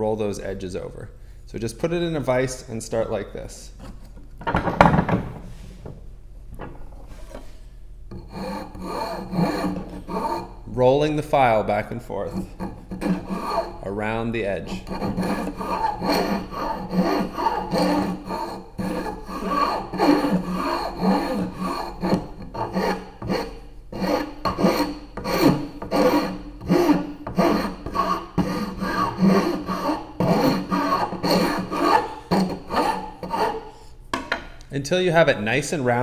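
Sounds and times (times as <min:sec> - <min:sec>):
hand file rasping on wood: 0:08.1 - 0:10.6, 0:12.3 - 0:13.8, 0:14.6 - 0:33.7.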